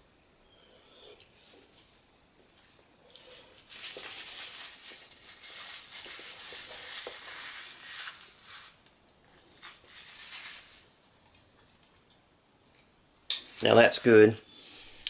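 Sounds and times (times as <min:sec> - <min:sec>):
person chewing with hissing breaths: 0:00.4 - 0:04.1.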